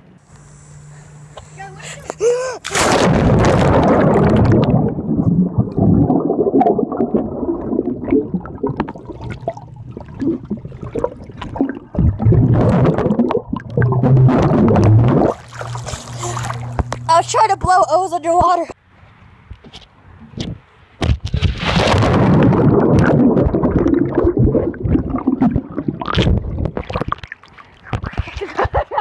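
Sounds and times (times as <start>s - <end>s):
swimmer blowing bubbles underwater: 1.8s - 17.1s, 21.9s - 27.2s
underwater bubbles churning: 2.7s - 17.1s, 21.6s - 28.1s.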